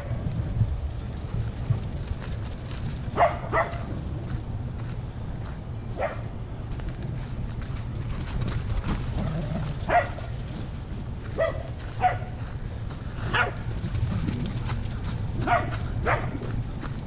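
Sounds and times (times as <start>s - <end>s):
steady low rumble: 0.0s - 17.0s
dog barking: 3.2s - 3.9s, 6.0s - 6.3s, 9.9s - 10.3s, 11.4s - 12.3s, 13.3s - 13.6s, 15.4s - 16.4s.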